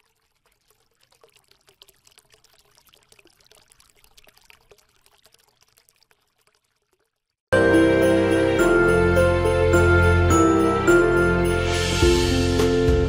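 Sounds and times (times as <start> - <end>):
faint crackling and trickling: 0.0 - 7.5
loud music: 7.6 - 13.0.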